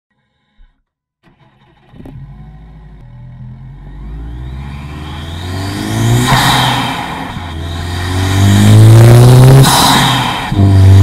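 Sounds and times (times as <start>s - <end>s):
turbocharged engine intake revving: 1.3s - 11.0s.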